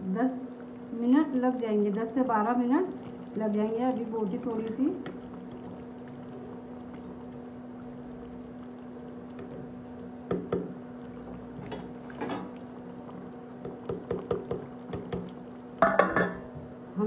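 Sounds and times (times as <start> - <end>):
steady low hum: 0.0 - 17.0
ladle stirring thick gravy: 1.3 - 16.1
ladle clinking against pot: 15.8 - 16.5.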